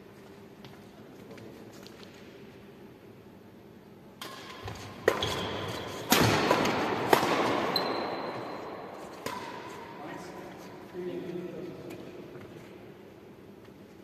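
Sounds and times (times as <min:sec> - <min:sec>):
badminton racket hitting shuttlecock: 0:04.2 - 0:08.4, 0:09.0 - 0:09.9.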